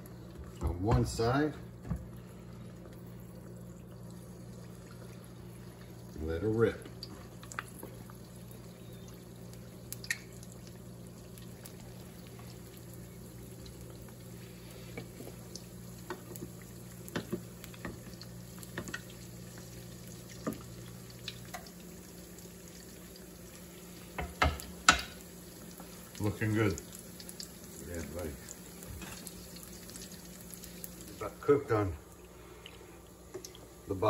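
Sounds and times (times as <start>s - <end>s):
deep-frying oil bubbling hiss: 0.0s - 34.0s
oil pops and crackles: 6.8s - 14.2s, 14.9s - 23.3s, 24.1s - 31.3s, 32.6s - 33.7s.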